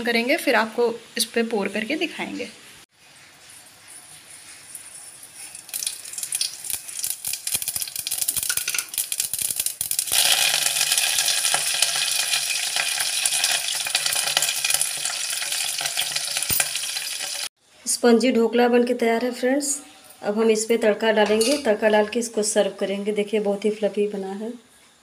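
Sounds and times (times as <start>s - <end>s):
leaves sizzling in hot oil: 0.1s - 17.5s
mustard seeds popping in oil: 5.7s - 17.5s.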